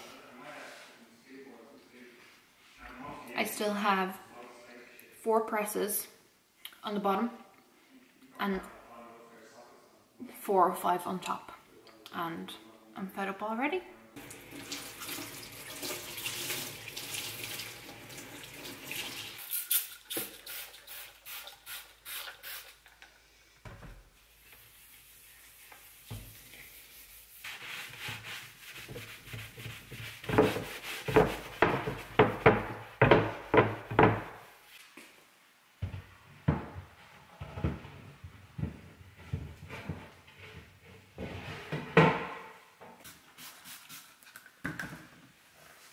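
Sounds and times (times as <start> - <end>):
sponge scrubbing a worktop: 24.2 - 32.6.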